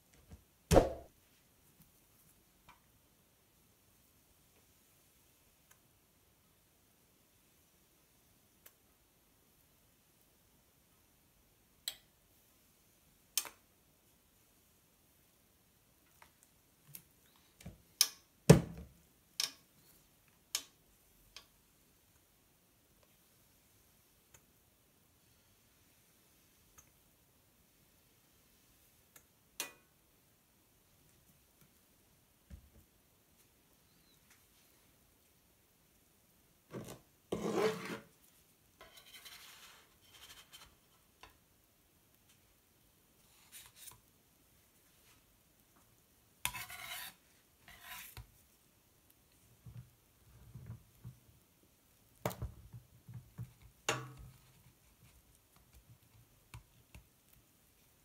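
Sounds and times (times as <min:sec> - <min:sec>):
spatula scraping griddle: 0:37.3 - 0:38.1, 0:38.8 - 0:40.8, 0:46.4 - 0:48.2.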